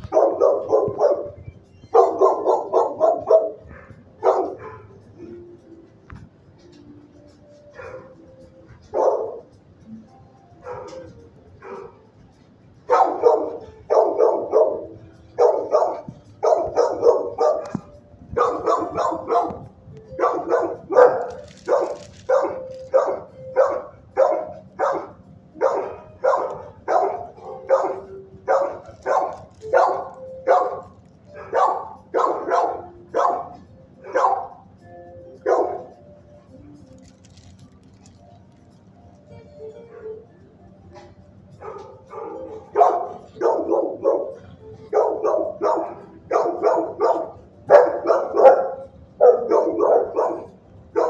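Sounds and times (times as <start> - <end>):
dog barking: 0.0 - 5.5, 7.7 - 9.5, 10.6 - 12.1, 12.9 - 34.7, 35.4 - 36.0, 41.0 - 51.0.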